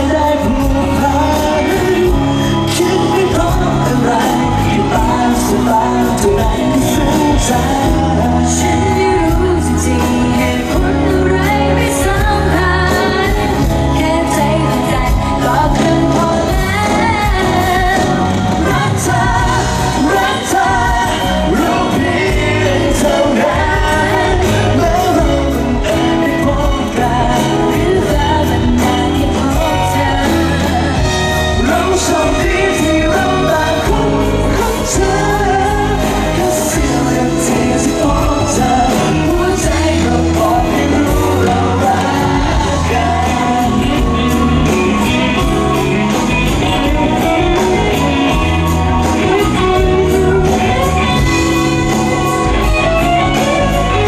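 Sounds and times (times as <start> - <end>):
live pop band playing: 0.0 - 54.0
male and female singing duet: 0.0 - 54.0.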